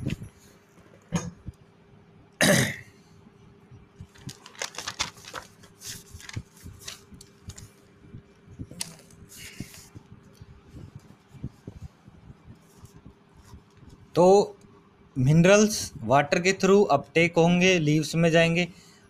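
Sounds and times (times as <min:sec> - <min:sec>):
faint steady hum: 0:00.0 - 0:19.0
person coughing: 0:02.4 - 0:02.9
pen paper and phone handling: 0:04.1 - 0:07.8.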